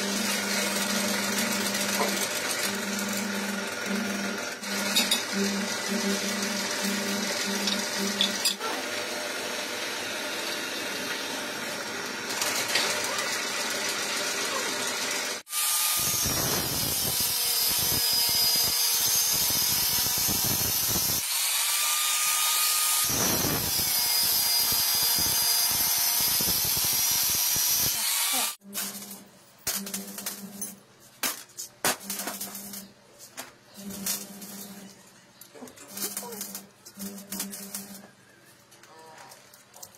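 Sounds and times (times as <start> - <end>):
angle grinder cutting steel: 0.0 - 30.7
drill press boring into steel: 13.0 - 28.6.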